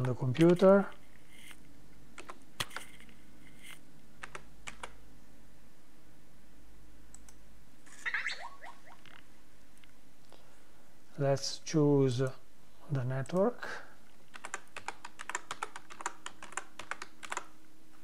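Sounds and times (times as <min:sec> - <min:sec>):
keyboard key presses: 0:02.2 - 0:02.9, 0:04.2 - 0:05.0, 0:14.3 - 0:17.5
chirping tones: 0:07.9 - 0:09.2.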